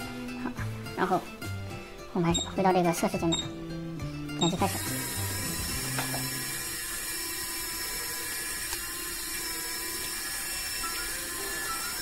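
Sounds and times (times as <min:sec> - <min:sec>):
lift drive hissing with tone: 0:04.4 - 0:12.0.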